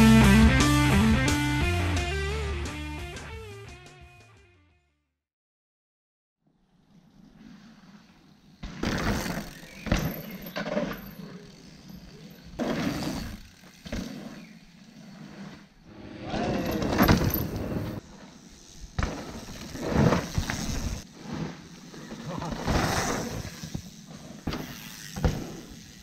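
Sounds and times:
bike tyres skidding on dirt: 6.6 - 26.0
bike knocking over bumps: 8.6 - 11.2, 16.6 - 18.0, 18.8 - 21.0, 22.4 - 26.0.

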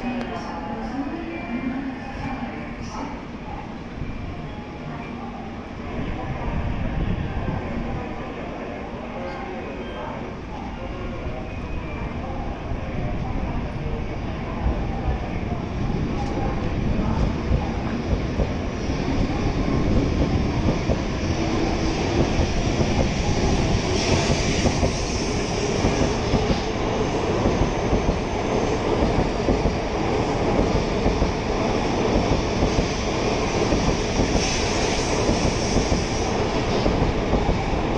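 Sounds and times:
rumble and hum of trains: 0.0 - 37.9.

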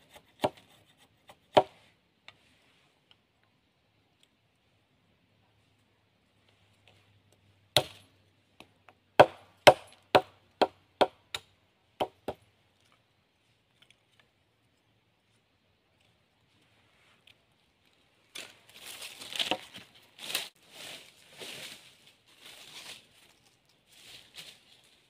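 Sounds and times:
machete chopping a stick: 7.8 - 8.1, 9.2 - 12.1.

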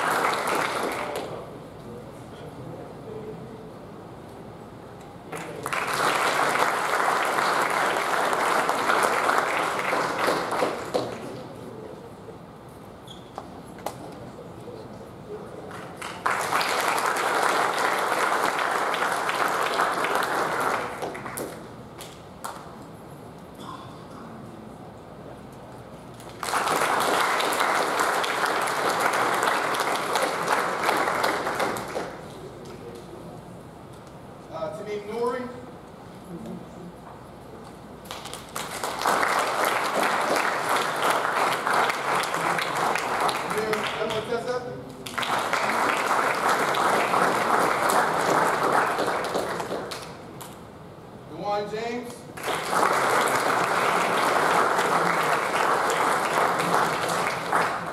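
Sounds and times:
audience applause: 0.0 - 1.4, 5.3 - 11.5, 15.7 - 21.7, 26.2 - 32.4, 38.1 - 44.4, 45.0 - 50.2, 52.4 - 57.9.

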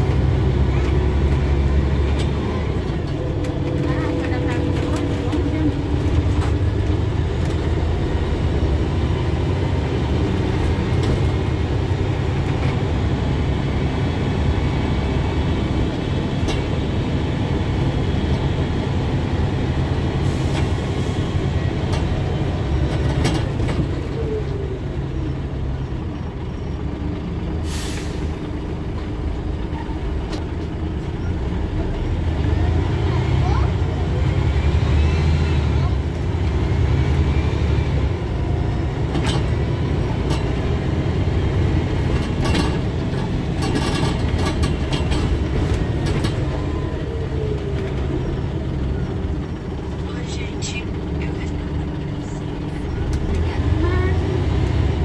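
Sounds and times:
bus engine rumble: 0.0 - 55.0
air brakes hiss: 27.6 - 28.3.

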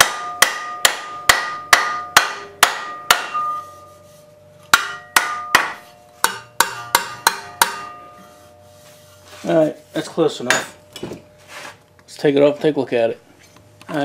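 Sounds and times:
hammer striking metal strip: 0.0 - 3.7, 4.7 - 8.2.

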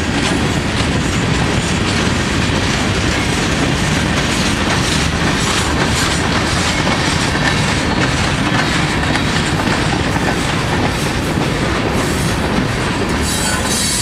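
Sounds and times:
train wheels rumbling on rail: 0.0 - 14.0
wheels clacking over rail joints: 0.0 - 14.0.

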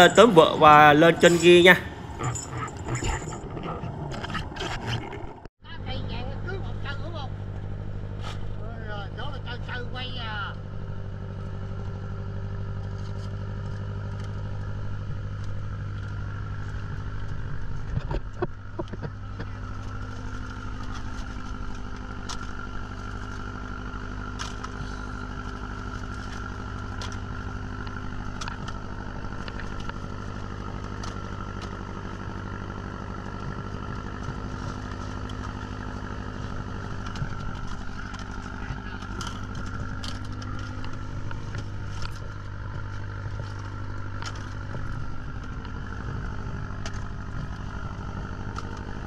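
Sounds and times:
engine humming: 0.0 - 49.0.

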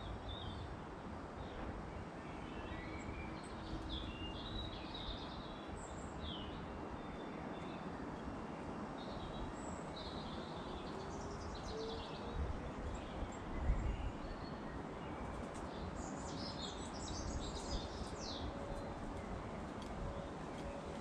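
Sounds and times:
steady outdoor hiss: 0.0 - 21.0.

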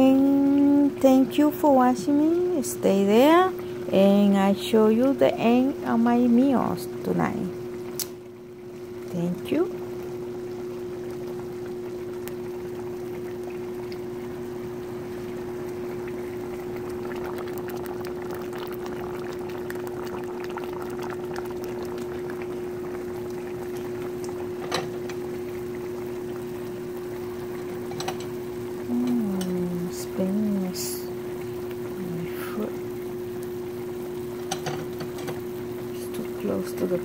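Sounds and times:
food bubbling in pots: 0.0 - 37.0.

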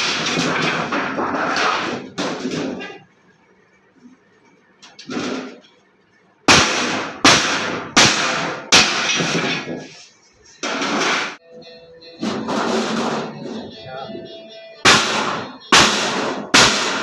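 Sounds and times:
hammer on sheet metal: 6.5 - 10.0, 10.6 - 11.4, 12.2 - 13.7, 14.8 - 17.0.

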